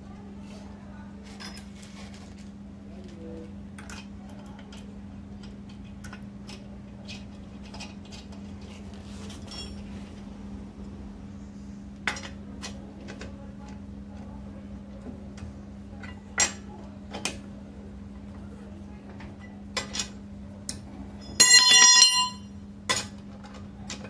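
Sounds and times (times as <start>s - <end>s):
steady low hum: 0.0s - 23.0s
metal wheel nuts clinking: 9.3s - 10.3s, 21.2s - 23.1s.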